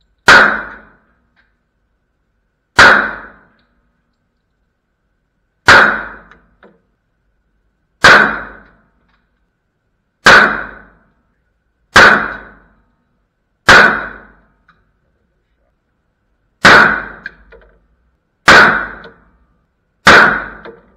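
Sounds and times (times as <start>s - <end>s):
pistol shots with echo: 0.2s - 1.0s, 2.8s - 3.5s, 5.7s - 6.4s, 8.0s - 8.8s, 10.2s - 11.0s, 11.9s - 12.7s, 13.7s - 14.4s, 16.6s - 17.4s, 18.5s - 19.3s, 20.0s - 20.8s.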